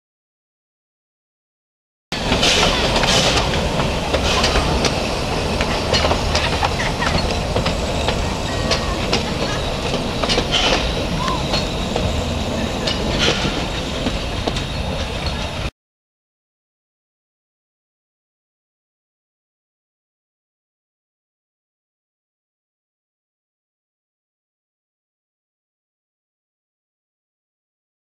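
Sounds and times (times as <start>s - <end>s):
train cars rumbling on track: 2.1s - 15.7s
wheels clicking on rails: 2.2s - 15.7s.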